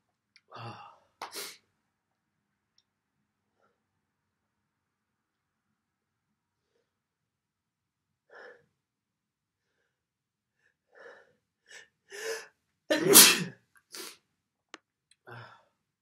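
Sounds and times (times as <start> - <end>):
man breathing: 8.2 - 8.8, 9.6 - 12.6
man sneezing: 12.9 - 13.6.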